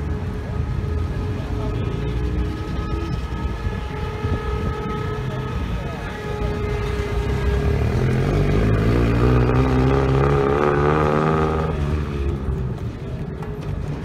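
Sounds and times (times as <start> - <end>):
car engine revving: 6.2 - 13.1.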